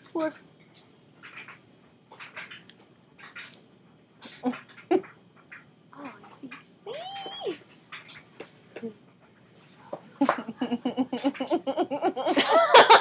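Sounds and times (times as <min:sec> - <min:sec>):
women giggling: 0:10.2 - 0:13.0.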